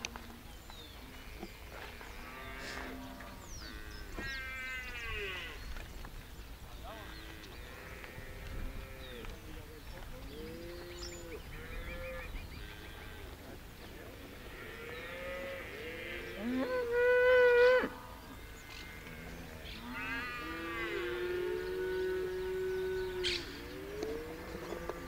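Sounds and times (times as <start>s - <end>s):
cattle mooing: 14.4s - 25.0s.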